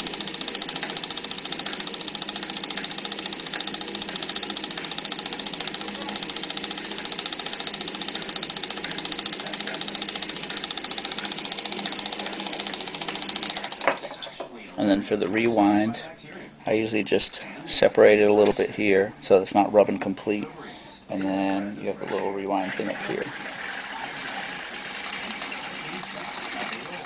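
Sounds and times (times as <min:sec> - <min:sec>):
film projector clattering: 0:00.0 - 0:14.4, 0:22.0 - 0:27.0.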